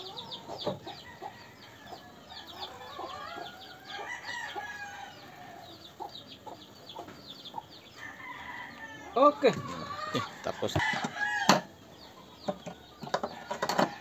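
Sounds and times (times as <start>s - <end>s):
rooster crowing: 0.0s - 5.8s, 8.0s - 11.7s, 13.1s - 14.0s
chicks chirping: 0.0s - 13.7s.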